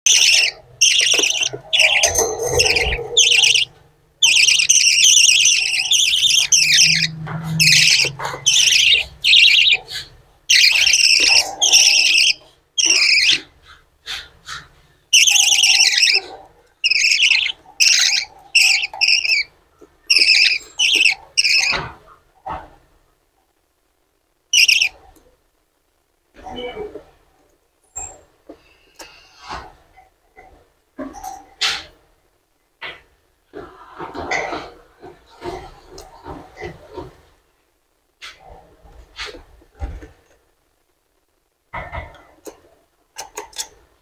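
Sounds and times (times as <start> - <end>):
budgerigars chirping: 0.1 - 13.5, 14.1 - 19.5, 20.1 - 21.9, 24.5 - 25.0.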